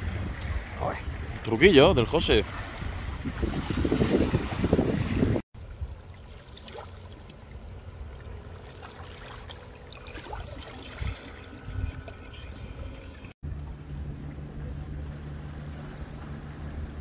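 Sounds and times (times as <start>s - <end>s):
water trickling and lapping: 0.0s - 17.0s
low rumble: 11.0s - 17.0s.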